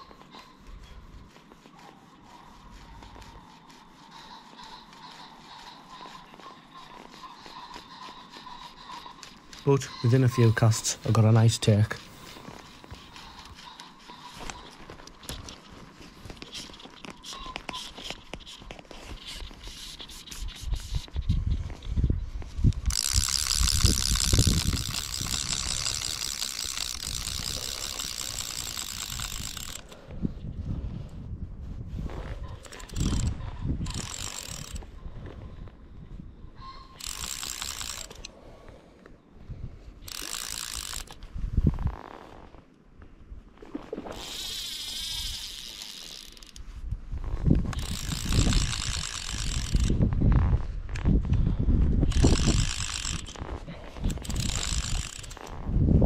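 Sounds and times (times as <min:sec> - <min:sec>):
wind buffeting microphone: 0:20.6 - 0:36.7, 0:41.3 - 0:42.0, 0:46.8 - 0:56.0
fishing reel ratchet buzzing: 0:22.7 - 0:30.0, 0:32.6 - 0:34.9, 0:36.9 - 0:38.3, 0:40.0 - 0:41.3, 0:44.0 - 0:46.7, 0:47.6 - 0:50.0, 0:52.0 - 0:55.6.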